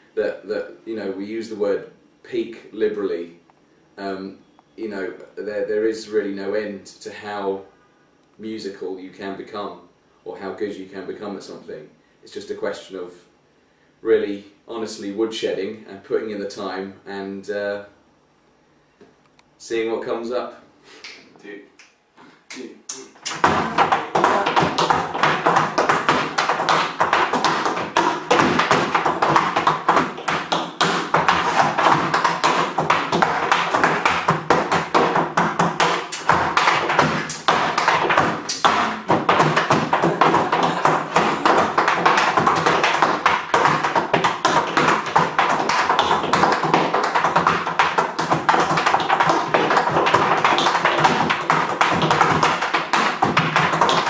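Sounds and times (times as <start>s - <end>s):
tap shoes on wooden board: 23.3s - 54.0s.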